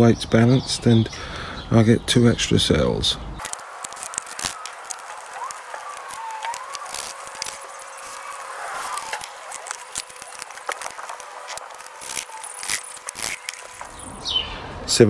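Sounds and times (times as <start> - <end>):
faint chirping calls: 0.0 - 15.0.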